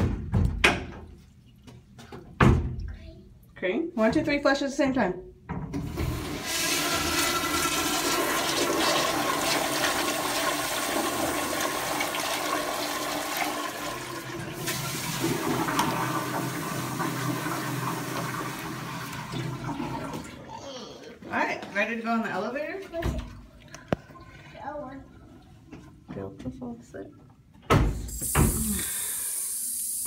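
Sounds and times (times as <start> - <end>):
toilets flushing: 5.8 - 20.5, 28.1 - 30.0.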